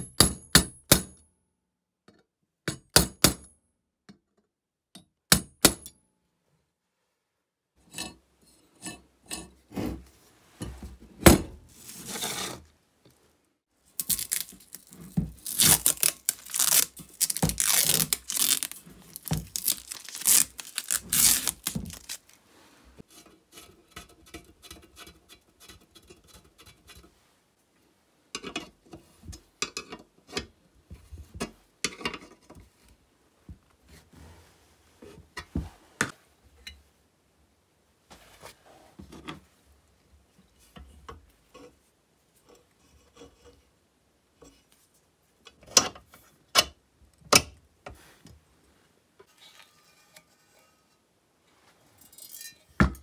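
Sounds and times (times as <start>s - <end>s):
tape being pulled and torn: 14.0s - 22.4s.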